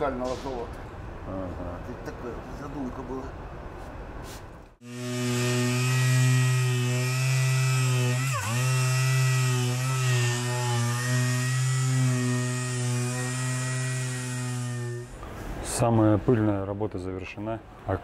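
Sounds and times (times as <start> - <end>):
orbital sander motor hum: 4.8 - 15.2.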